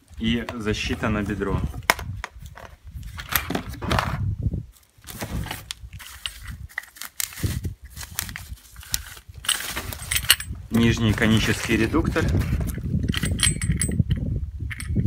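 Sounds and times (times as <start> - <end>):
plastic bag rustling: 4.7 - 12.9
parts clicking and knocking: 8.8 - 10.6, 12.3 - 15.0.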